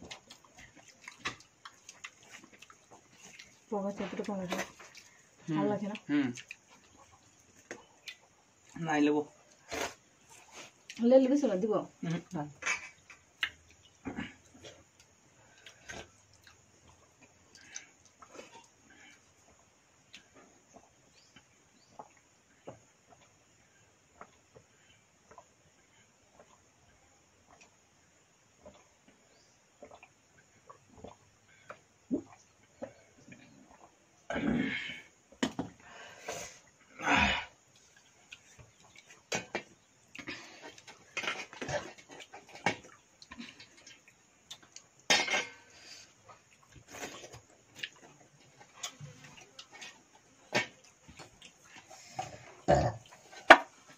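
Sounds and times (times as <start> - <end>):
faint gulping and slurping: 0.0 - 11.0, 11.9 - 53.9
people slurping food: 9.6 - 10.8, 45.4 - 47.9.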